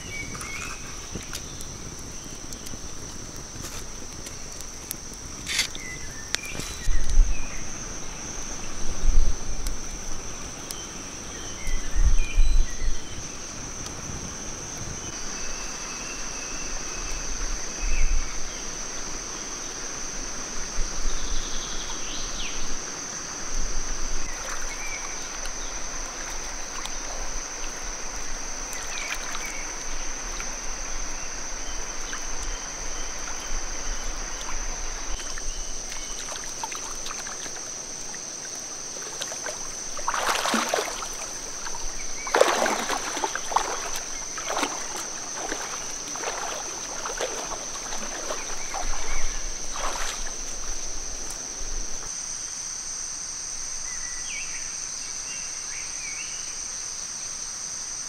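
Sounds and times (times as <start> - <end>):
river water splashing: 0.0 - 8.9, 18.4 - 52.1
cicadas chorus: 0.0 - 58.0.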